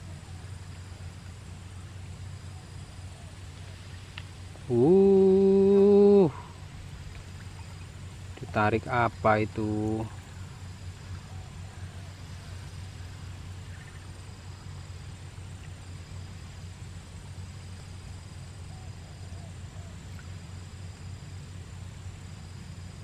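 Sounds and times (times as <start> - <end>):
faint chirps: 0.0 - 16.7
insects trilling: 0.0 - 23.0
steady low hum: 0.0 - 23.0.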